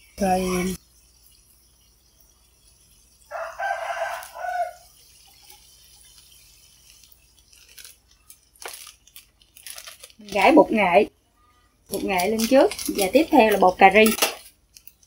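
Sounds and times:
rooster crowing: 0:03.3 - 0:04.9.

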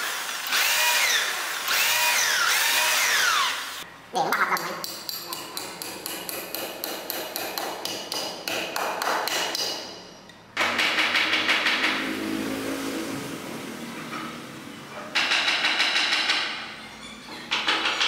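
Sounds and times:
hammer striking chisel in wood: 0:04.8 - 0:09.9, 0:15.2 - 0:16.6
mechanical hum: 0:09.8 - 0:18.0.

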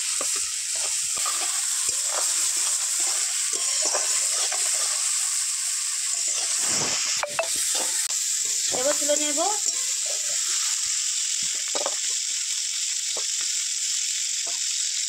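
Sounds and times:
shrimp sizzling in oil: 0:00.0 - 0:15.0
metal spatula scraping pan: 0:00.2 - 0:09.0.

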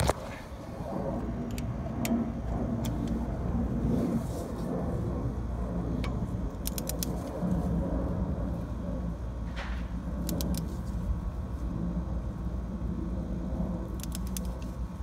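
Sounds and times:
steady low rumble: 0:00.0 - 0:15.0
torque wrench ratchet clicks: 0:06.6 - 0:07.1.

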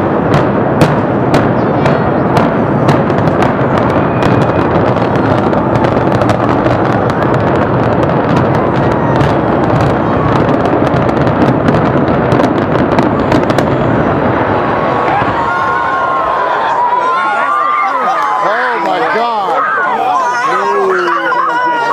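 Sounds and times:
building collapsing rumble: 0:00.0 - 0:17.0.

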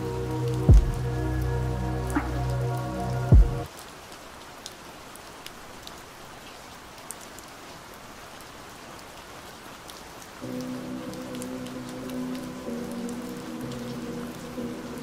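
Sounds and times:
muffled song: 0:00.0 - 0:03.7
rain hissing: 0:00.0 - 0:07.1, 0:07.7 - 0:15.0
light raindrops: 0:00.0 - 0:15.0.

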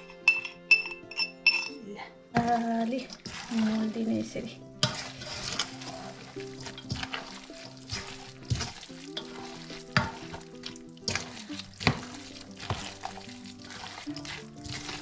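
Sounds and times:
spoon squelching wet filling: 0:02.4 - 0:03.9, 0:04.8 - 0:15.0.

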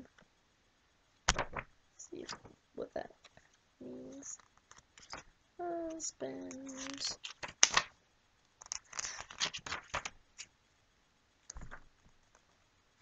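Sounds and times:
book pages flipping: 0:01.3 - 0:02.5, 0:04.4 - 0:05.3, 0:05.9 - 0:07.9, 0:08.6 - 0:10.5, 0:11.5 - 0:12.2.

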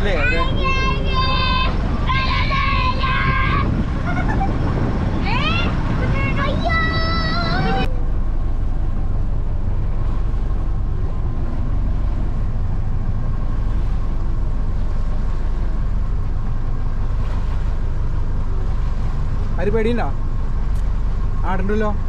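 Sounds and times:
boat moving through water: 0:00.0 - 0:22.0
motorboat engine rumble: 0:00.0 - 0:22.0.

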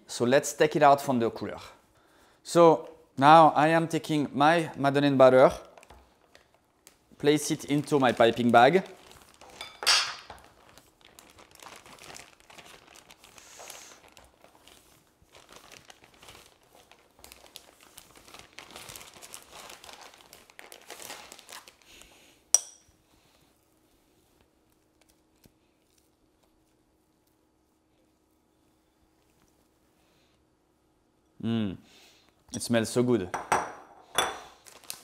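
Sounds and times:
plastic piping bag crinkling: 0:04.6 - 0:22.3, 0:23.4 - 0:29.9, 0:34.5 - 0:35.0.

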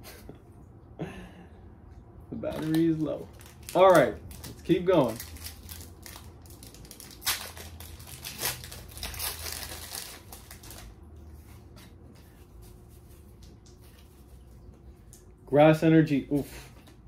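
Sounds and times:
cards rustling: 0:02.5 - 0:11.0
foil wrapper crinkling and tearing: 0:02.5 - 0:11.0.

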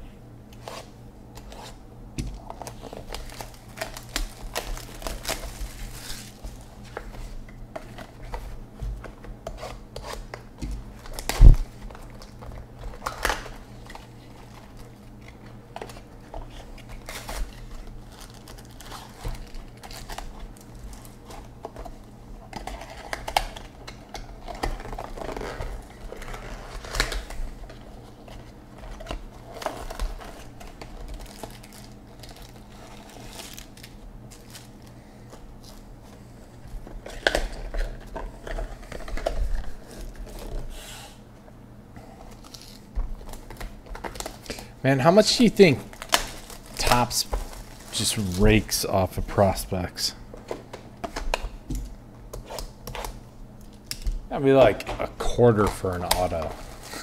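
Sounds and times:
shrink wrap crinkling and tearing: 0:02.4 - 0:08.5, 0:09.6 - 0:34.9, 0:42.3 - 0:50.1, 0:52.4 - 0:57.0.

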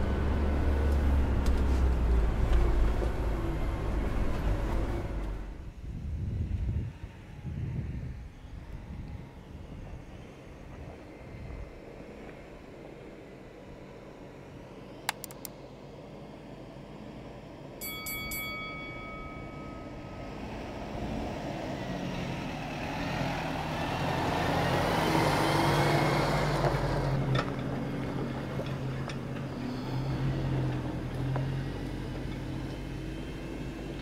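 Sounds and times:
truck diesel engine: 0:00.0 - 0:05.8, 0:09.2 - 0:34.0
tyres on dirt track: 0:00.0 - 0:34.0
sharp clicks: 0:15.0 - 0:15.6
bell-like chime: 0:17.8 - 0:20.8.

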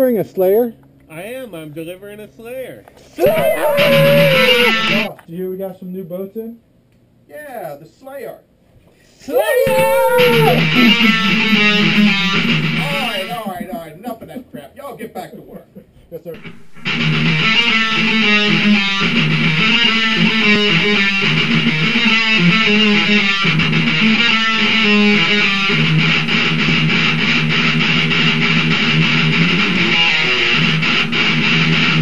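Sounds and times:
electric guitar rock music: 0:03.2 - 0:05.1, 0:09.6 - 0:13.8, 0:16.4 - 0:32.0.

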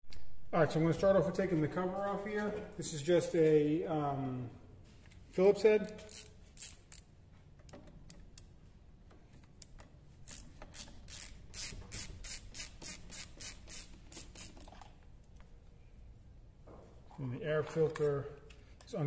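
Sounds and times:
screwdriver scraping strokes: 0:10.2 - 0:14.9.

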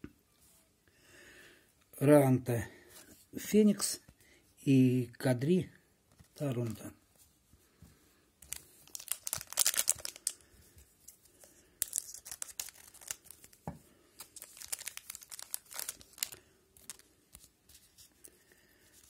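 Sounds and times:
wrapper tearing and crinkling: 0:08.4 - 0:10.4, 0:11.8 - 0:13.6, 0:14.2 - 0:17.5.

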